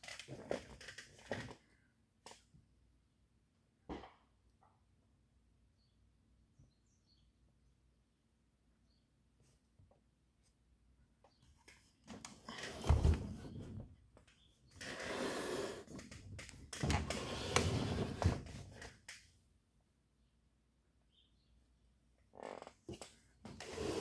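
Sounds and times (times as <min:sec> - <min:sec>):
cabinet scraping on a table: 0:14.8 - 0:16.1, 0:16.8 - 0:18.7, 0:23.5 - 0:24.0.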